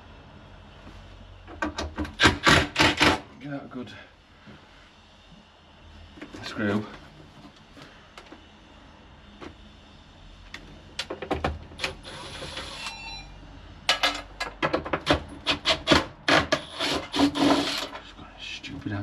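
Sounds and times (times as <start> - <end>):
tools clicking and knocking: 13.9 - 16.7.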